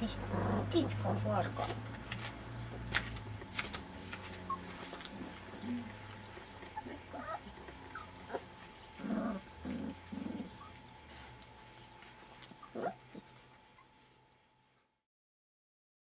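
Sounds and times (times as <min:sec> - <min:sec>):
puppies yipping: 0:04.2 - 0:11.2, 0:11.8 - 0:14.0.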